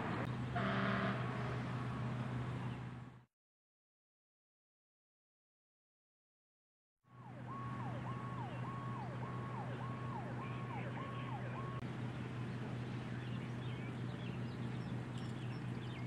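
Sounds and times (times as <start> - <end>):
low engine hum: 0.0 - 3.3, 7.1 - 16.0
emergency vehicle siren: 7.1 - 11.9.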